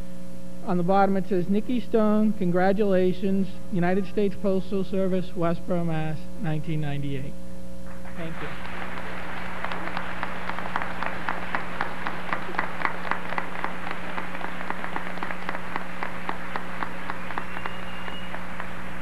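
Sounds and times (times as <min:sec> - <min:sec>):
electrical hum: 0:00.0 - 0:19.0
audience applauding: 0:08.0 - 0:19.0.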